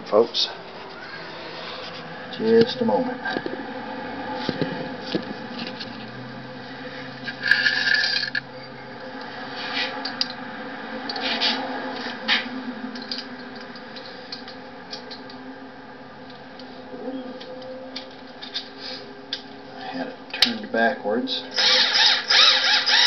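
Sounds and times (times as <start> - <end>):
metal parts clinking and scraping: 7.2 - 8.4
metallic rattle: 7.2 - 8.4.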